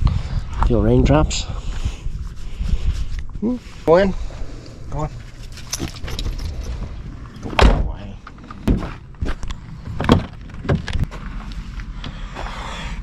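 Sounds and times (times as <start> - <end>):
van doors thumping shut: 7.5 - 8.0, 8.6 - 9.0.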